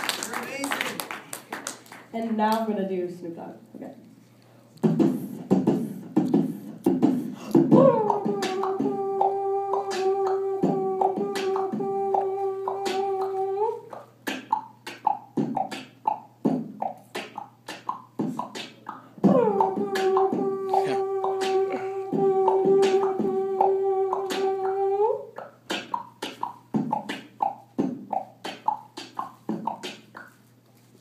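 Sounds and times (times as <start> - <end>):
beatboxing vocal percussion: 4.8 - 30.4
long hummed note: 7.8 - 13.8, 19.4 - 25.2.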